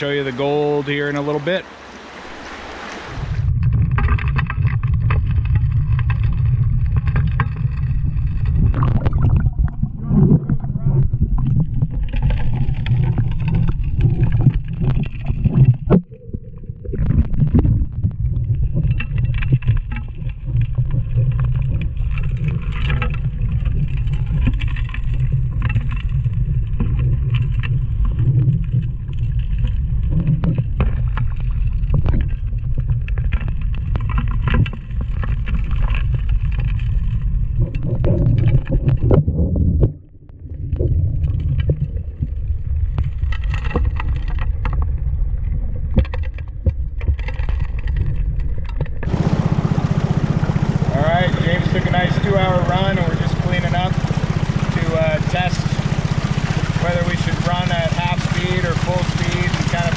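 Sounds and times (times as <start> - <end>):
muffled underwater dredge rumble: 0.0 - 59.9
gravel clicking and knocking: 3.4 - 59.9.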